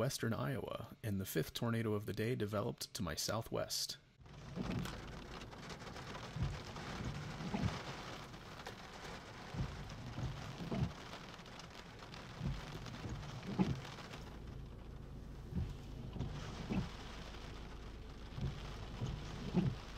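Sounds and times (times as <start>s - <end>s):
heavy rain hiss: 4.3s - 19.9s
short low thumps: 15.3s - 16.9s.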